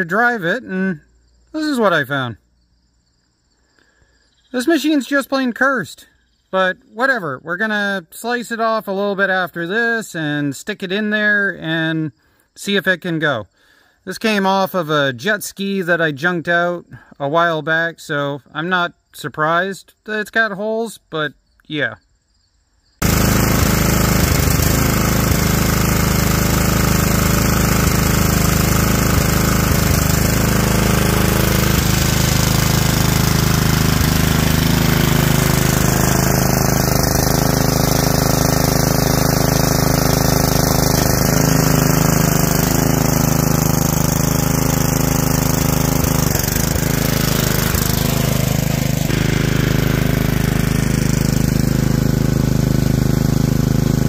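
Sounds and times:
garden tractor engine running: 23.0 - 54.0.

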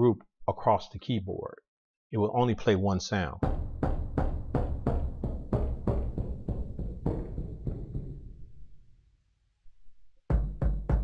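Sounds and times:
kick drum hits: 3.4 - 8.5, 10.3 - 11.0.

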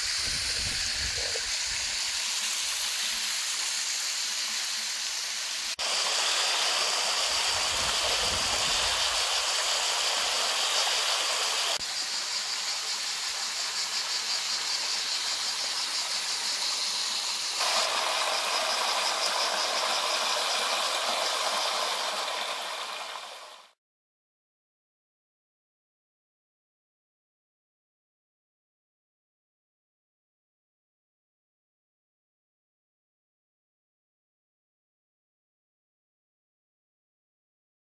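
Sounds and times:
stream water rushing over rocks: 5.5 - 11.8, 17.6 - 23.7.

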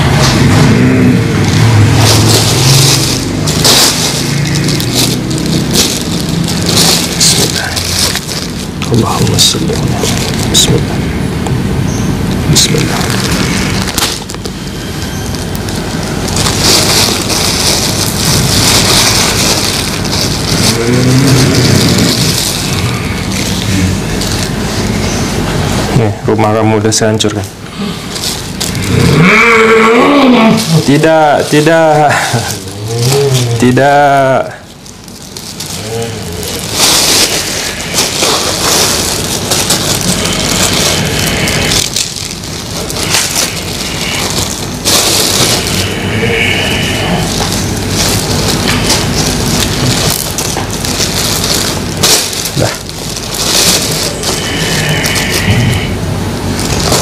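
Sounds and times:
deep voiced groan: 0.0 - 3.3, 20.5 - 24.2, 28.8 - 34.7, 35.6 - 38.0, 45.4 - 50.2, 54.0 - 57.0
person growling and rasping: 0.0 - 11.0, 18.0 - 24.5, 27.7 - 34.7, 35.6 - 57.0
plastic bag crinkling: 0.0 - 11.6, 12.5 - 29.4, 30.0 - 57.0.

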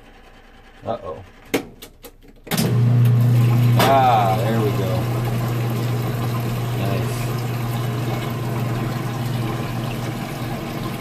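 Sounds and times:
washing machine motor hum: 2.5 - 11.0
water rushing: 3.1 - 11.0.

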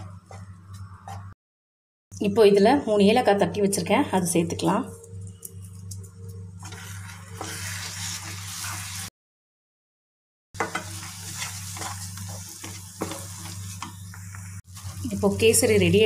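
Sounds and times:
spatula scraping pan: 6.6 - 9.1, 10.6 - 15.2
food bubbling and sizzling in pan: 10.6 - 15.7.

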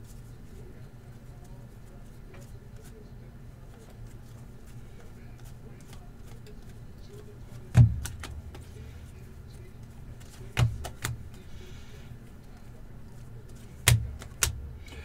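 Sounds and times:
low steady hum: 0.0 - 15.0
cards knocking on tabletop: 10.5 - 11.2.

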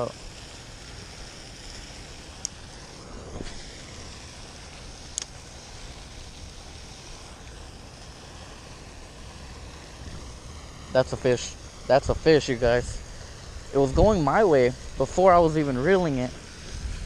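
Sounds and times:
sharp high clicks: 5.1 - 5.4
wind rumble on microphone: 12.0 - 17.0.

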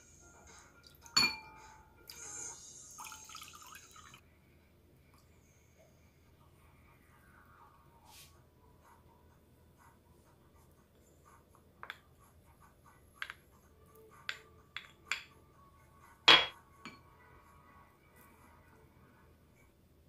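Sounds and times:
utensils clinking on ceramic bowl: 1.2 - 1.6, 16.3 - 17.0.

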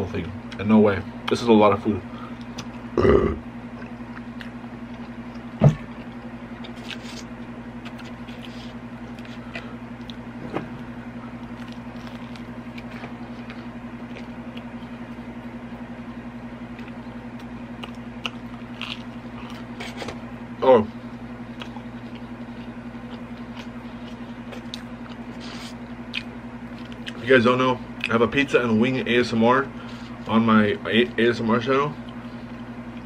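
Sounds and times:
low hum: 0.0 - 33.0
man chewing: 2.4 - 10.4, 11.0 - 15.5, 16.6 - 20.2, 21.4 - 27.3.

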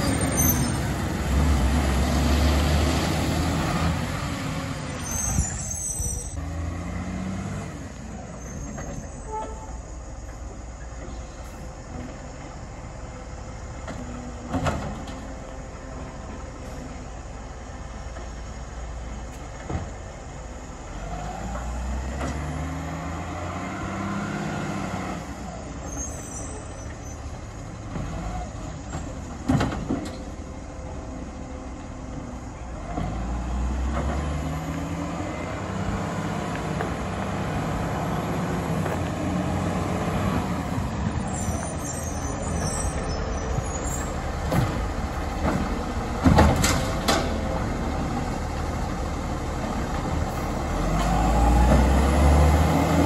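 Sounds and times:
garbage truck engine revving: 0.0 - 5.5, 6.3 - 9.0, 20.8 - 26.0, 26.9 - 53.0.

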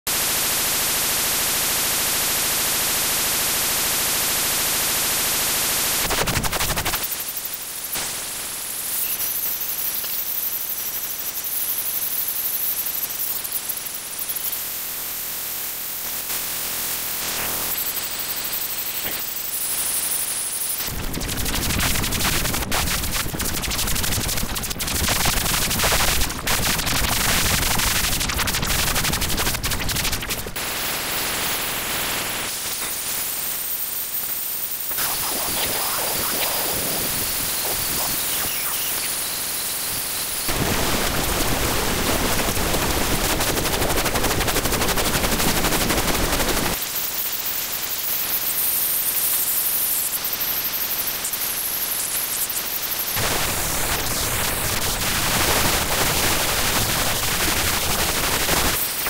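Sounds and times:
loud steady synthetic hiss: 0.1 - 59.0
rapid crackling clicks: 20.8 - 30.6, 34.9 - 39.2.

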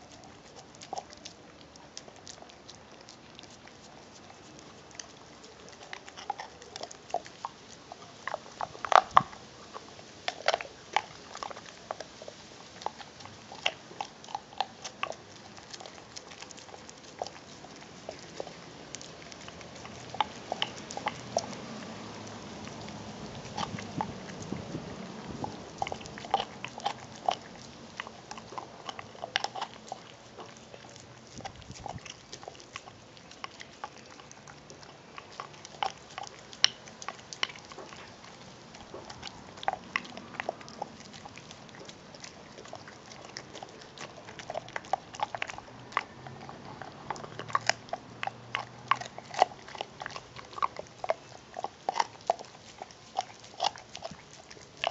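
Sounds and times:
dog chewing a bone: 0.0 - 54.9.

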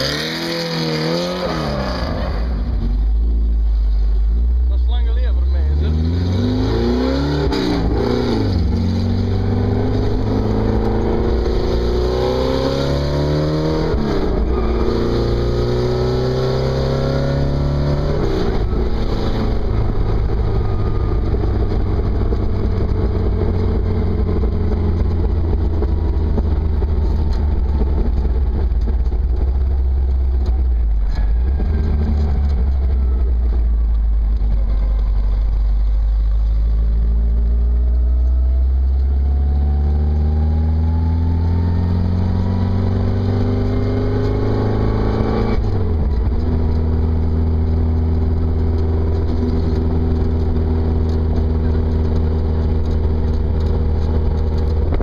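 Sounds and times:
engine revving with gear changes: 0.0 - 3.2, 4.6 - 55.0.

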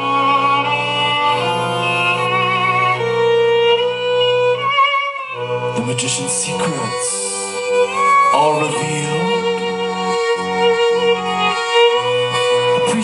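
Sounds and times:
violin melody with vibrato: 0.0 - 13.0
held low note: 5.3 - 13.0.

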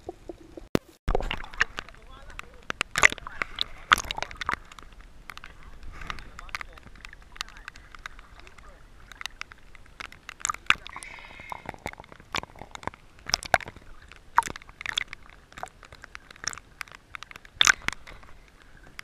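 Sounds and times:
water splashing against camera housing: 0.0 - 19.0.

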